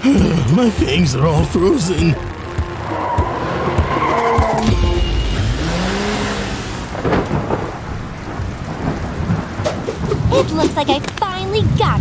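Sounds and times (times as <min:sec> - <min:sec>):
rumbling rush of noise: 0:00.0 - 0:09.8
rising and falling tone: 0:01.2 - 0:07.1.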